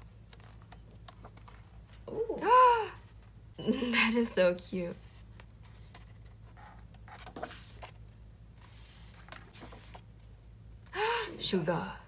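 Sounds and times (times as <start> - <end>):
paper tapping and rustling: 0.0 - 2.0
paper sliding rustle: 4.9 - 8.0, 8.6 - 10.1.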